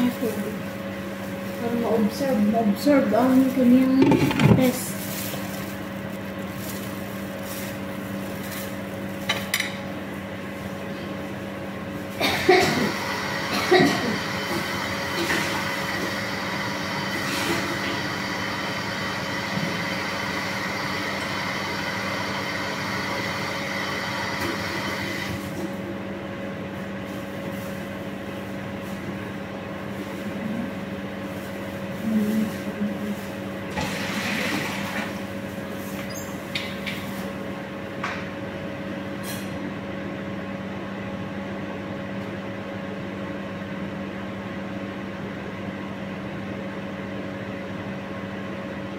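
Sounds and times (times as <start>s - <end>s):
steady machine hum: 0.0s - 48.9s
brief knocks and rustles: 4.0s - 4.8s.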